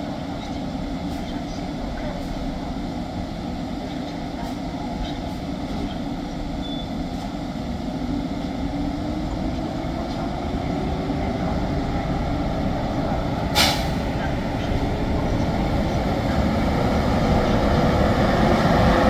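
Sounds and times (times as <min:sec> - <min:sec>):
train rumbling along track: 0:00.0 - 0:19.0.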